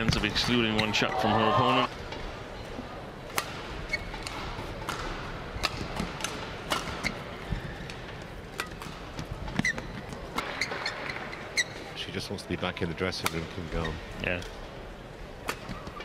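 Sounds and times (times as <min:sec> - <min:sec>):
arena background noise: 0:00.0 - 0:16.0
shoes squeaking on court: 0:03.9 - 0:04.7, 0:09.4 - 0:12.0
racket striking shuttlecock: 0:04.2 - 0:07.1.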